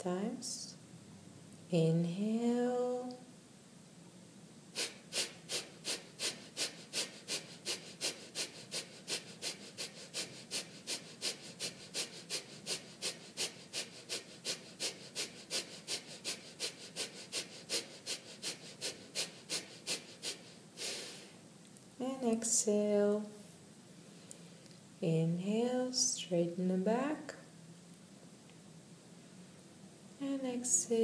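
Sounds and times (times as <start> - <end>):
forceful nasal exhalations: 4.7 - 21.4.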